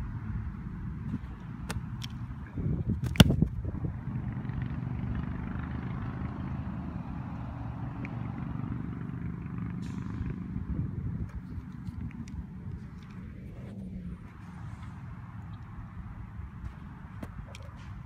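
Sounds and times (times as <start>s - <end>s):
foot kicking a football: 2.9s - 3.7s.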